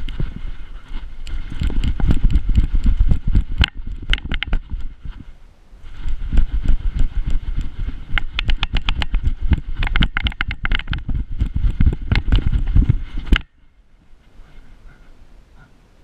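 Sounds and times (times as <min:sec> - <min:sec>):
camera mount clicks and rattles: 0:08.2 - 0:09.2, 0:09.8 - 0:11.1.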